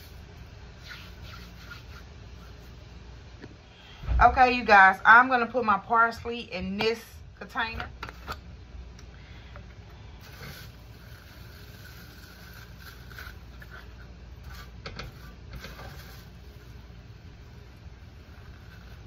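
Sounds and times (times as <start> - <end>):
low hum: 0.0 - 10.4.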